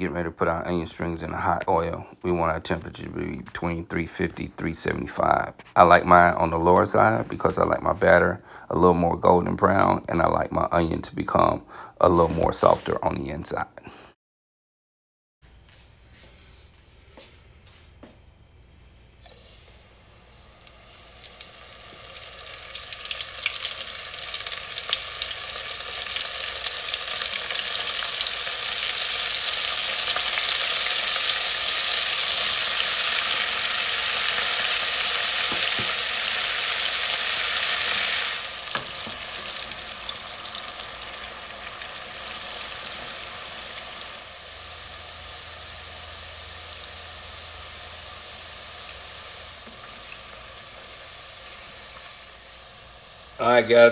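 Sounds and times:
deep-frying sizzle with crackles: 0:19.2 - 0:53.9.

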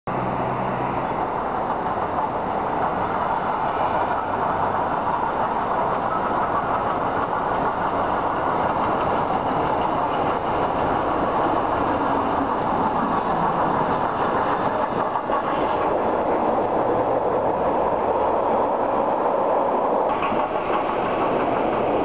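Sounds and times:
steam train rushing: 0:00.2 - 0:22.0.

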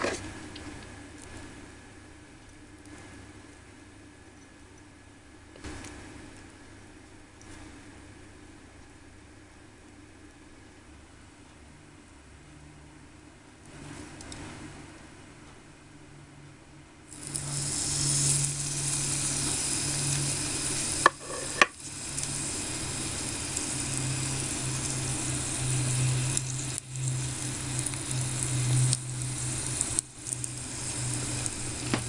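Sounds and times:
cutlet sizzling in hot oil: 0:00.0 - 0:00.5, 0:17.1 - 0:32.0.

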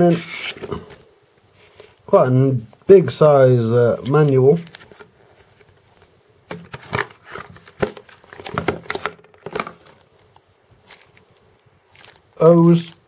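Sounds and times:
paper rustling: 0:00.0 - 0:01.0, 0:04.0 - 0:13.0.

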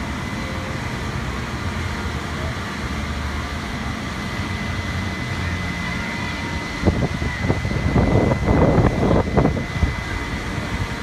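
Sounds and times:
diesel engine idling: 0:00.0 - 0:11.0
wind on microphone: 0:06.6 - 0:11.0.

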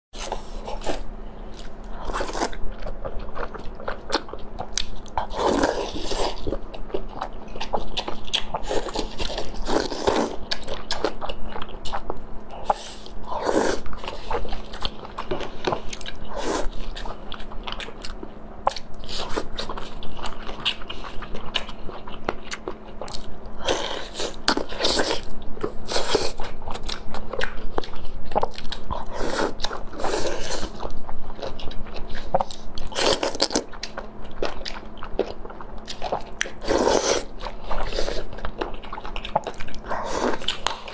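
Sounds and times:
faint steady hum: 0:00.2 - 0:40.9
people biting and chewing food: 0:00.2 - 0:40.9.

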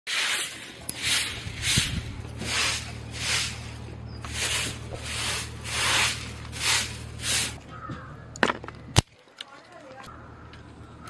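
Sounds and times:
steady low hum: 0:00.4 - 0:09.0.

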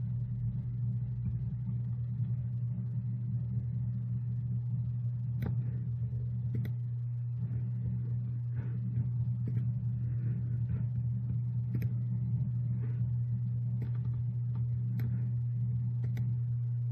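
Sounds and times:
low hum: 0:00.0 - 0:16.9
sharp clicks: 0:13.8 - 0:15.2, 0:16.0 - 0:16.4.

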